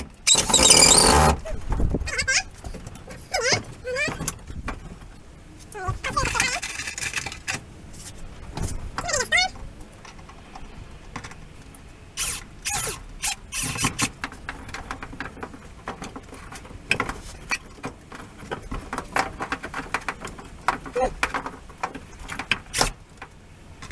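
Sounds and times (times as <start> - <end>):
squeak falling in pitch: 0.3 - 1.4.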